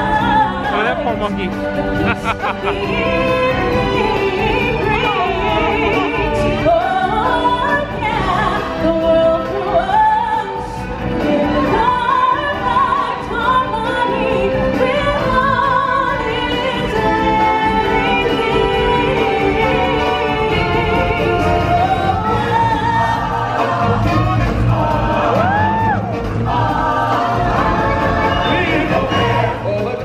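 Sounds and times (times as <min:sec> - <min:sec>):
woman singing: 0:00.0 - 0:01.0, 0:01.6 - 0:24.0
live backing music: 0:00.0 - 0:30.0.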